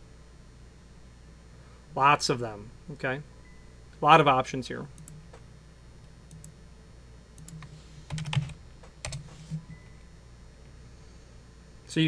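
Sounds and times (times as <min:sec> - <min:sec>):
keyboard and mouse clicks: 0:05.0 - 0:05.4, 0:06.3 - 0:06.6, 0:07.4 - 0:09.8.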